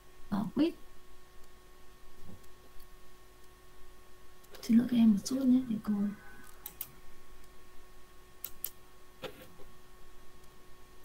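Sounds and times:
faint steady hum: 0:00.0 - 0:11.0
computer mouse clicks: 0:06.5 - 0:07.0, 0:08.4 - 0:08.8.

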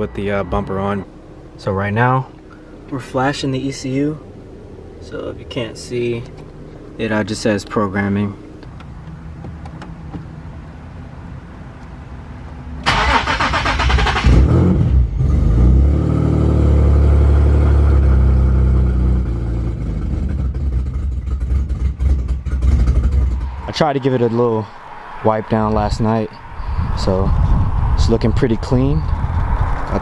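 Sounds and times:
car engine cranking and starting: 0:00.0 - 0:10.7, 0:12.7 - 0:23.9
car engine idling: 0:00.0 - 0:14.3, 0:16.7 - 0:30.0.

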